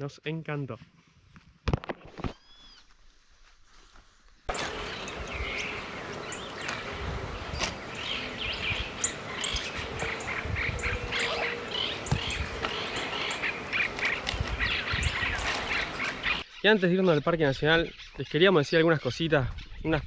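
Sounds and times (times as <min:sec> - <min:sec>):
low rumbles: 0:04.5 - 0:16.4
small birds chirping: 0:04.5 - 0:20.0.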